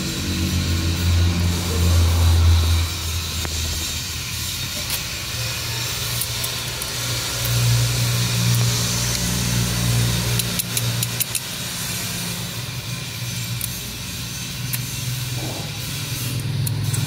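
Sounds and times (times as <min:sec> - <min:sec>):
low engine hum: 0:00.0 - 0:04.6.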